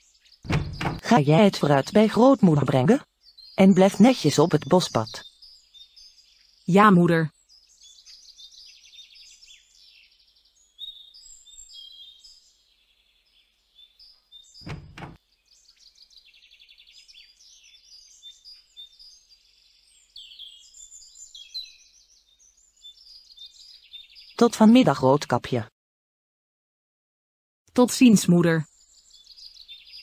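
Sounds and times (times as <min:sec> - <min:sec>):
small birds chirping and trilling: 0:00.0 - 0:25.6, 0:27.8 - 0:30.0
wooden gate knock: 0:00.5 - 0:01.1, 0:14.7 - 0:15.2.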